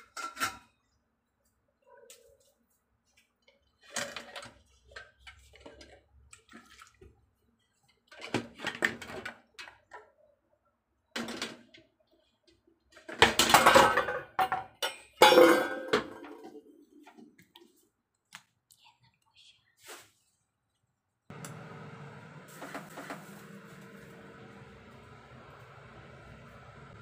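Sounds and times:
kitchen items knocking and clattering: 0:00.0 - 0:00.8, 0:03.8 - 0:06.1, 0:08.1 - 0:10.1, 0:11.2 - 0:11.9, 0:12.9 - 0:17.4.

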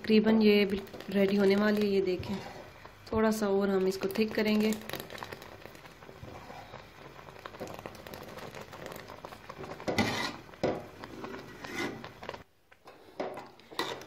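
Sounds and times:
metal spoon scraping steel pot: 0:09.9 - 0:10.4, 0:11.3 - 0:12.1.

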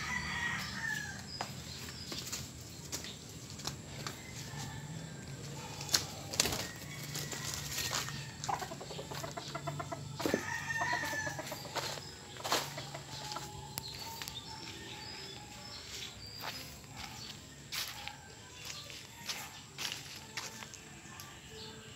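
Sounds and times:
chickens clucking: 0:05.3 - 0:20.7.

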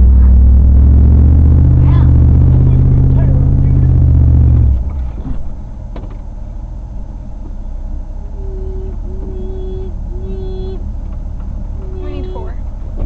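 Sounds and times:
vehicle engine rumble: 0:00.0 - 0:13.0
short held tones: 0:08.3 - 0:10.8.

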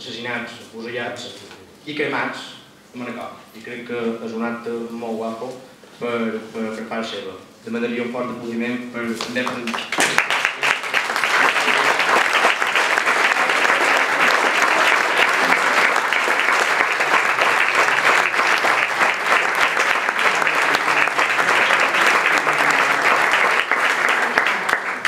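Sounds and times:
audience applauding: 0:09.2 - 0:25.0.

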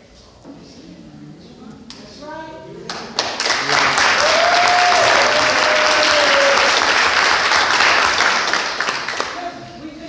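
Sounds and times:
audience applauding: 0:03.1 - 0:09.5.

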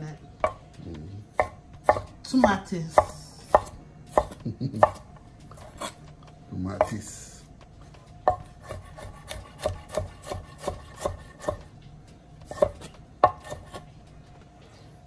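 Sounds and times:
knife chopping on wooden board: 0:00.4 - 0:00.7, 0:01.3 - 0:06.0, 0:06.8 - 0:07.1, 0:08.2 - 0:11.7, 0:12.4 - 0:13.9.

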